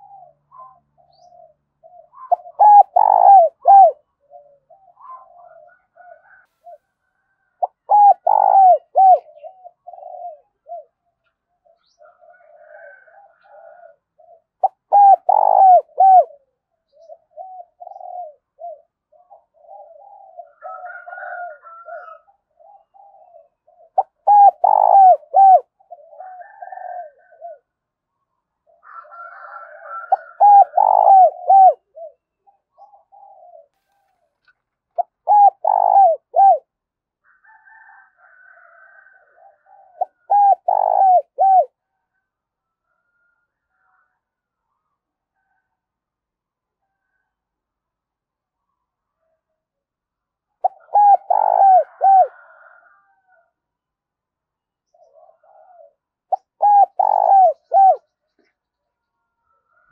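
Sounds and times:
dove cooing: 0.0s - 27.8s, 28.6s - 36.8s, 37.5s - 42.0s, 50.6s - 53.5s, 54.9s - 58.5s.

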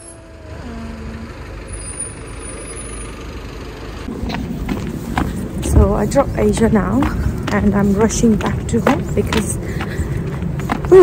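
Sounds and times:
short low tone: 0.0s - 1.6s
passing vehicles rumble: 0.0s - 11.0s.

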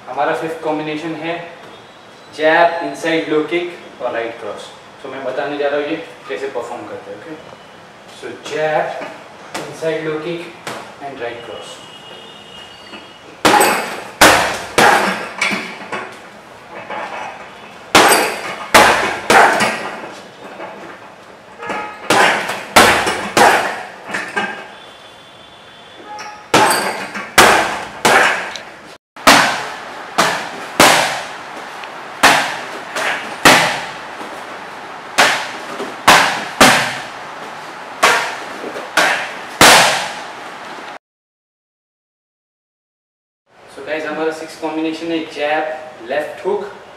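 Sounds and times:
kicks smacking pads: 13.4s - 15.4s, 17.9s - 20.0s, 22.0s - 24.0s, 26.5s - 28.5s, 29.2s - 31.4s, 32.2s - 34.3s, 35.2s - 37.1s, 38.0s - 40.2s
punches hitting heavy bag: 13.4s - 15.8s, 17.9s - 20.0s, 21.7s - 24.0s, 26.5s - 28.5s, 29.2s - 31.4s, 32.2s - 34.0s, 35.2s - 37.1s, 38.0s - 40.2s.

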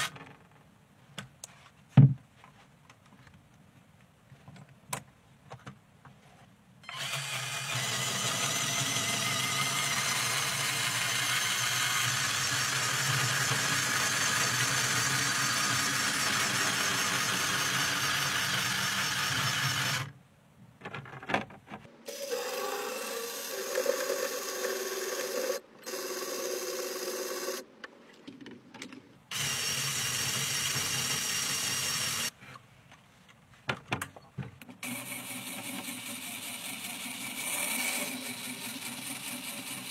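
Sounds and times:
toy car electric motors running: 6.8s - 20.1s, 22.1s - 27.6s, 29.3s - 32.3s, 34.8s - 39.9s.

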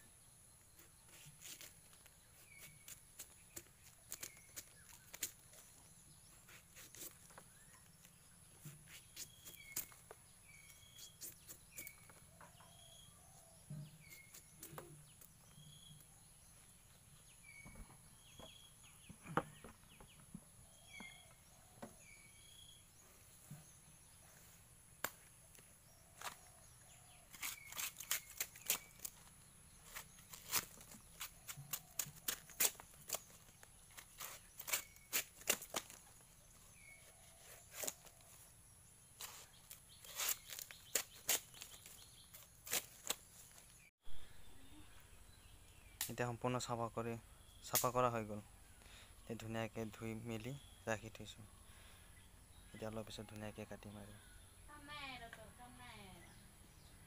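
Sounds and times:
birds chirping: 0.0s - 57.0s
knife cutting bamboo shoot: 0.7s - 5.7s, 27.3s - 36.0s, 37.0s - 38.3s, 39.2s - 43.6s.

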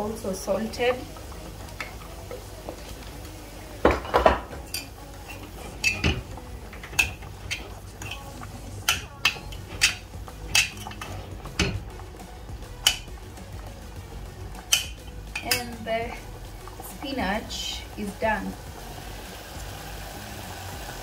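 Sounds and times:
metal spoon clinking against pot: 4.0s - 11.8s, 12.8s - 13.2s, 14.6s - 16.2s.

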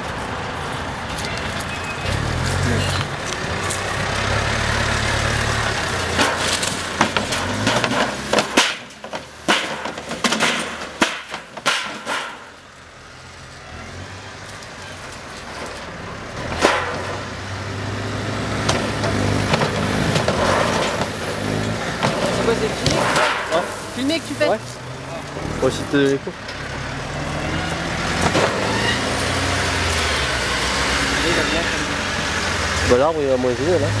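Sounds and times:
tractor diesel engine running: 0.0s - 34.0s
knocks and clatters of loader: 5.2s - 12.6s, 14.5s - 17.4s, 18.5s - 24.2s, 28.0s - 28.8s.

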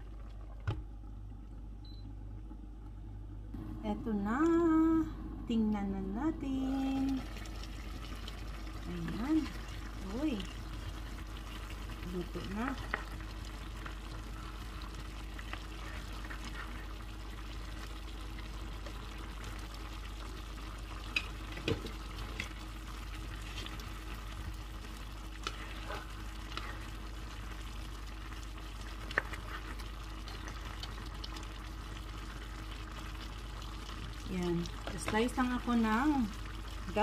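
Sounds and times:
food sizzling in a pan: 6.4s - 37.0s.

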